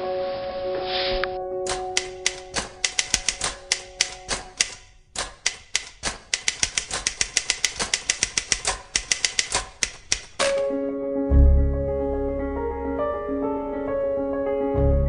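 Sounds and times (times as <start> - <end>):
typewriter key clicks: 1.7 - 10.7.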